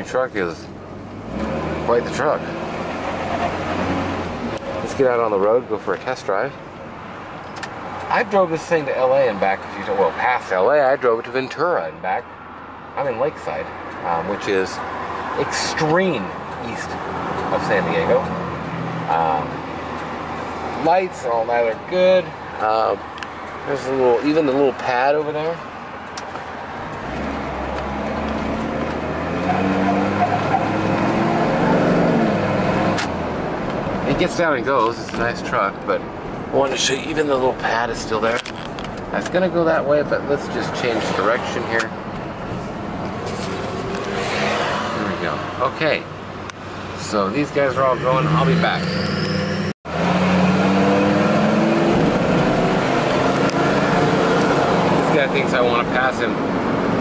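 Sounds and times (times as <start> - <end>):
road noise rumble: 0.0 - 57.0
truck engine accelerating: 24.3 - 57.0.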